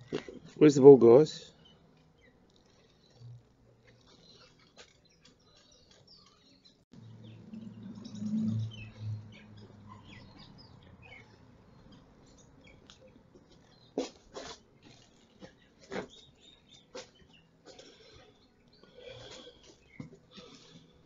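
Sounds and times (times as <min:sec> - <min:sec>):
small birds chirping: 0:00.0 - 0:21.0
low rumble: 0:07.0 - 0:10.9.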